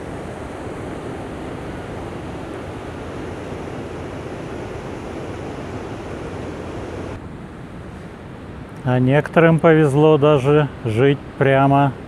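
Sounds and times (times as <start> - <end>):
river water pouring over weir: 0.0 - 7.2.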